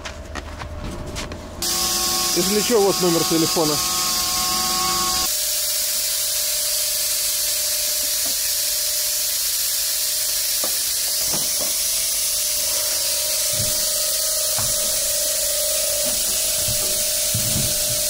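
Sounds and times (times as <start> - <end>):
tools knocking: 10.6 - 11.8, 13.4 - 15.0, 16.1 - 18.0.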